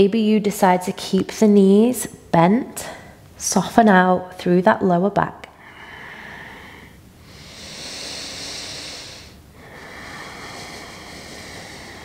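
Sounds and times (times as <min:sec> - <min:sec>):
person breathing deeply: 0:05.6 - 0:12.0.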